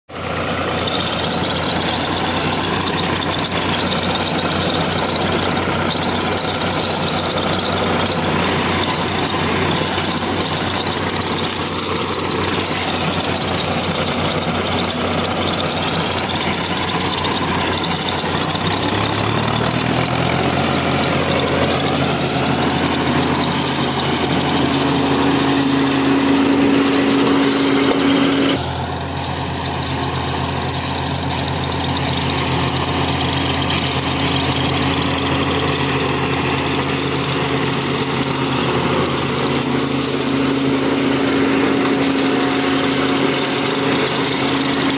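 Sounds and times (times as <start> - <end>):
tractor diesel engine drone: 0.0 - 44.9
thresher mechanical noise: 0.1 - 44.9.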